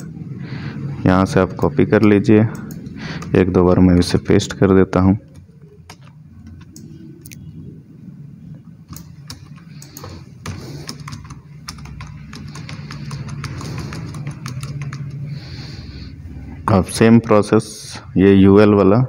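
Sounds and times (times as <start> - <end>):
low steady hum: 0.0 - 19.0
computer keyboard keys clicking: 2.0 - 4.2, 5.2 - 7.4, 8.9 - 15.3.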